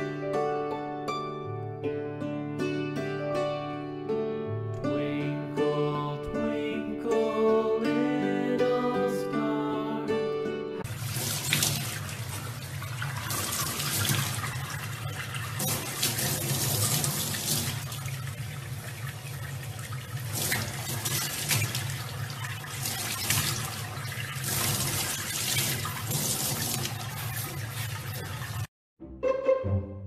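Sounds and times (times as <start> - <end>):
water splashing: 10.8 - 28.7.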